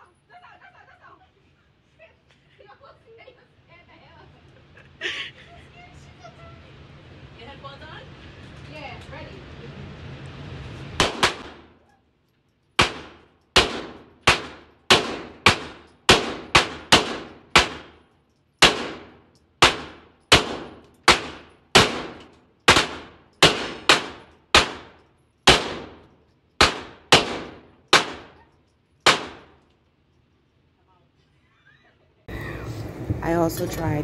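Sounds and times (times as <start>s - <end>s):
handgun shots echoing: 18.6s - 28.4s, 29.0s - 29.6s.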